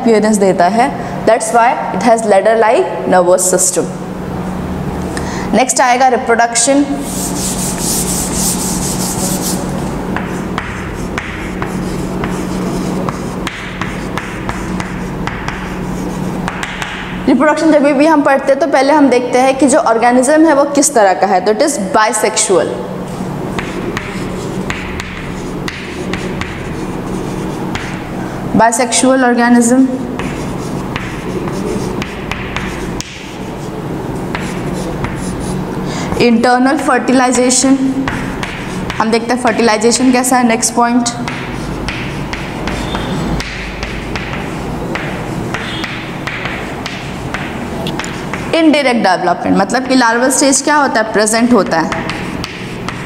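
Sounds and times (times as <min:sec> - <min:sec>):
steady low hum: 0:00.0 - 0:53.0
chalk tapping and scraping: 0:06.5 - 0:17.7, 0:23.1 - 0:29.0, 0:29.6 - 0:48.8, 0:51.2 - 0:53.0.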